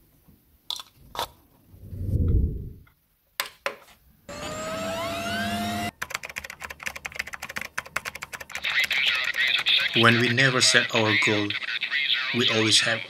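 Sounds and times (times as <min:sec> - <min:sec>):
low rumble: 0:01.7 - 0:02.9
rising whine: 0:01.8 - 0:02.9
computer fan noise: 0:04.3 - 0:10.7.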